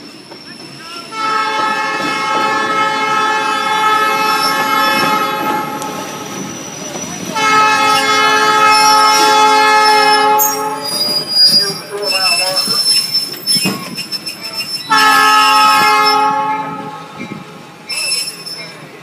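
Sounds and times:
rail cars rumbling: 0:00.0 - 0:19.0
train air horn blasts: 0:01.1 - 0:05.9, 0:07.4 - 0:11.2, 0:14.9 - 0:17.3.

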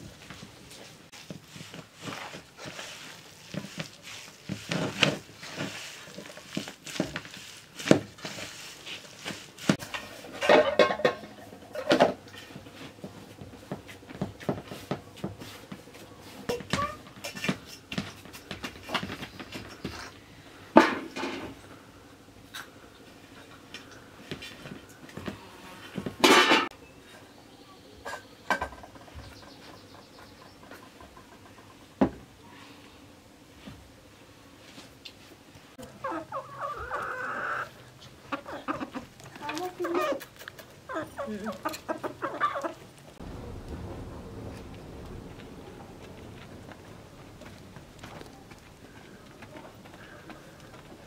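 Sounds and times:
dough kneaded by hand: 0:00.0 - 0:10.1.

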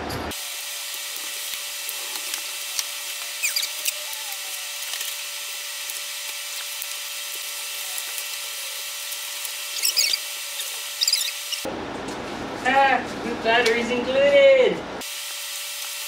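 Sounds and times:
rustling of packing wrap: 0:01.1 - 0:11.4.

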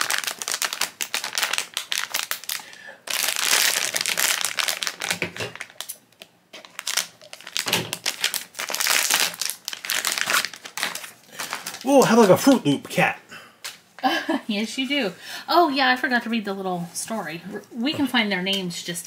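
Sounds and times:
foil packet crinkling: 0:00.0 - 0:12.7.

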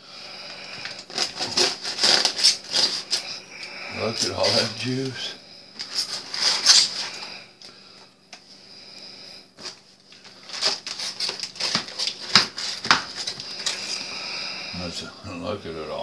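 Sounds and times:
aluminium foil crinkling and tearing: 0:00.5 - 0:03.4, 0:04.0 - 0:05.2, 0:05.8 - 0:07.3, 0:09.6 - 0:14.1
knife sawing through foil: 0:00.6 - 0:07.4, 0:10.4 - 0:14.2.

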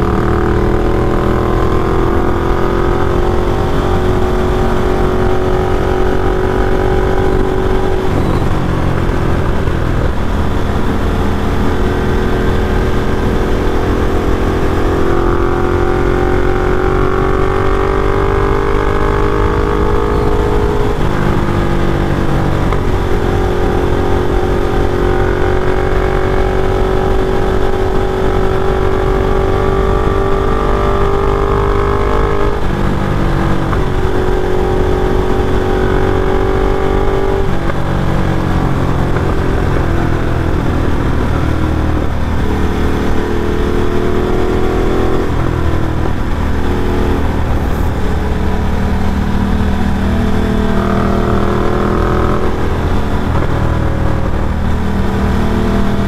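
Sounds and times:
motorcycle engine accelerating: 0:00.0 - 0:56.0
wind and road noise: 0:00.0 - 0:56.0.

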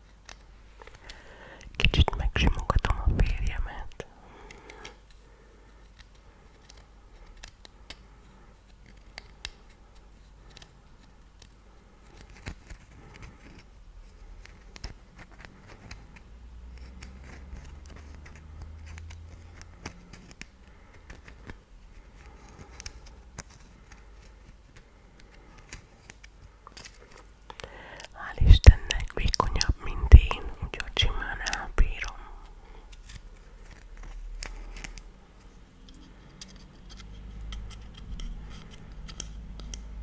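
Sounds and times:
light scratches: 0:28.4 - 0:39.7.

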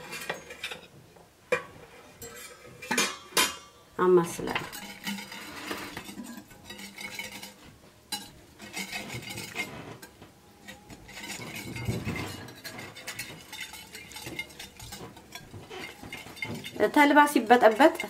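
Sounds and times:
whisk wires clinking on dish: 0:00.0 - 0:03.7, 0:04.4 - 0:18.0
wire whisk swishing and scraping: 0:04.5 - 0:18.0.

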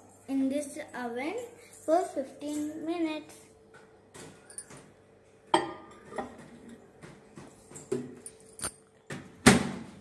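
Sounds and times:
glass bowl knocking and clinking: 0:05.5 - 0:06.4.

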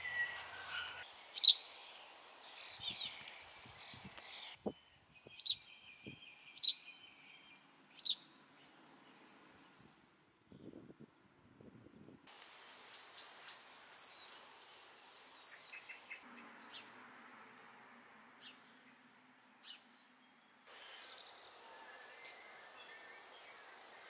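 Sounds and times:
soft steady hiss: 0:00.0 - 0:09.6, 0:12.3 - 0:16.3, 0:19.5 - 0:24.0
small birds chirping: 0:00.0 - 0:10.8, 0:12.3 - 0:24.0.

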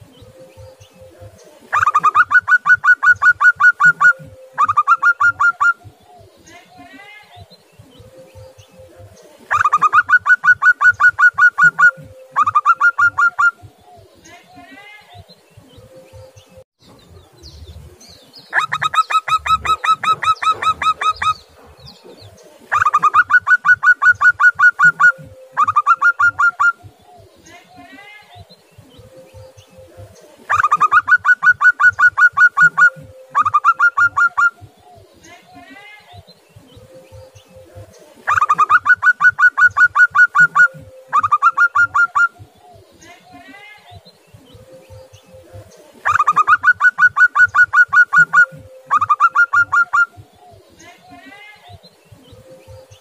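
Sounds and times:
dove cooing: 0:00.0 - 0:14.2, 0:17.2 - 0:27.4, 0:29.0 - 0:35.6, 0:36.2 - 0:43.7, 0:44.5 - 0:51.2.

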